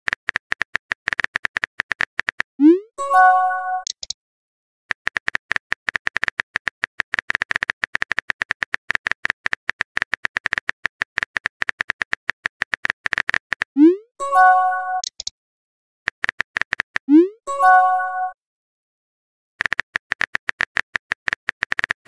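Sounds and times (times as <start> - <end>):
keyboard typing clicks: 0.1 - 2.7, 3.7 - 4.2, 4.9 - 13.7, 14.9 - 15.3, 16.1 - 17.2, 19.6 - 22.0.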